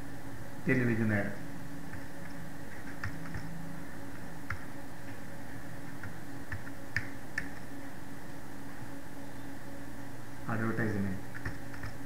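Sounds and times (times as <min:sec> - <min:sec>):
steady low hum: 0:00.0 - 0:12.0
keyboard typing clicks: 0:01.9 - 0:03.5, 0:04.4 - 0:04.7, 0:06.0 - 0:07.6, 0:11.3 - 0:12.0.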